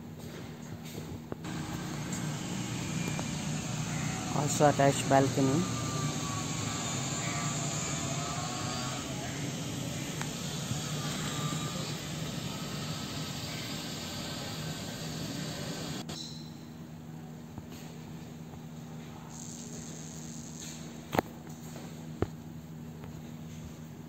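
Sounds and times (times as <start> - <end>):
low steady hum: 1.4 - 16.0
jet aircraft roar: 1.5 - 16.0.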